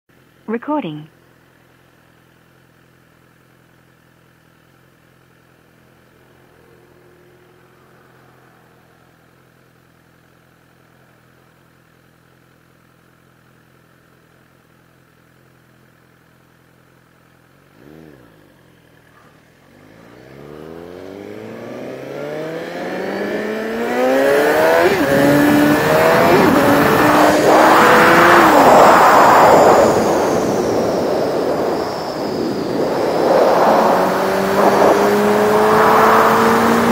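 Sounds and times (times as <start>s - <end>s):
motorcycle engine idling and accelerating: 0.1s - 36.9s
wind noise on microphone: 24.9s - 36.9s.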